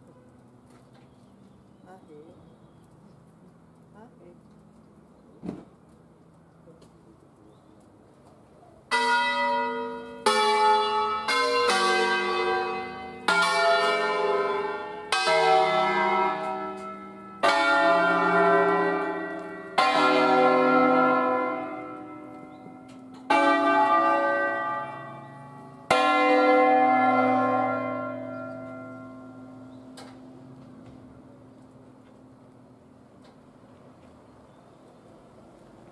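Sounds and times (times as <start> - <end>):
church bells ringing: 8.9 - 34.0.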